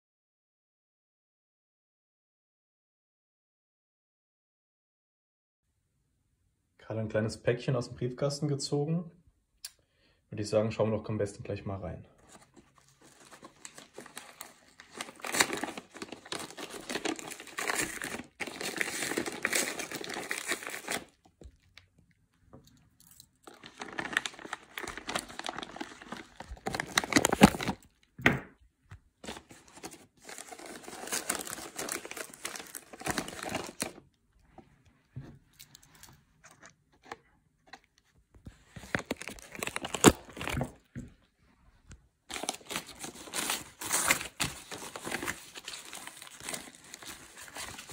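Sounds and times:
paper tearing and crinkling: 12.3 - 21.3, 23.1 - 27.9, 29.2 - 34.0, 38.7 - 40.8, 42.3 - 47.9.

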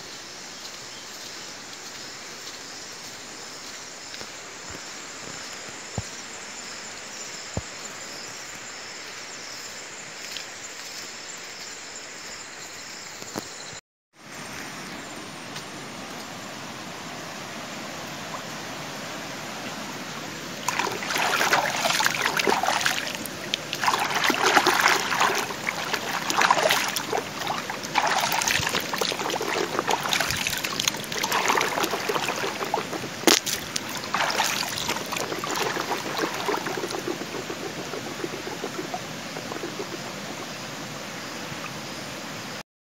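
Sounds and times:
stream babbling over stones: 19.4 - 42.0.

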